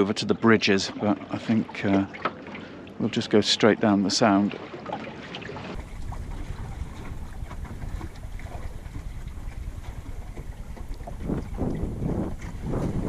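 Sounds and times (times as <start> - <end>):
water washing along a hull: 0.0 - 13.0
wind buffeting microphone: 5.8 - 13.0.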